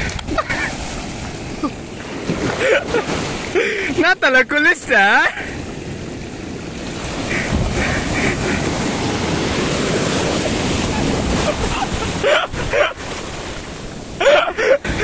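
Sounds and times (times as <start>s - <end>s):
sea surf breaking: 0.0s - 15.0s
wind buffeting microphone: 5.4s - 12.9s.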